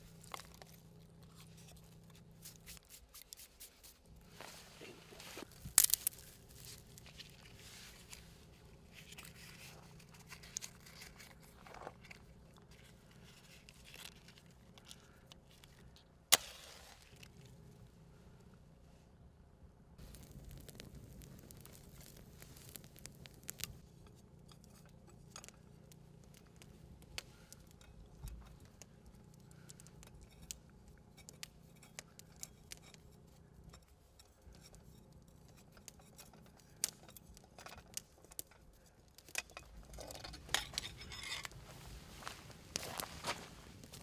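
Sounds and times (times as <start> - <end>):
rustling: 0.0 - 17.8, 20.0 - 44.0
low steady hum: 0.0 - 44.0
faint irregular clicks: 20.0 - 39.8.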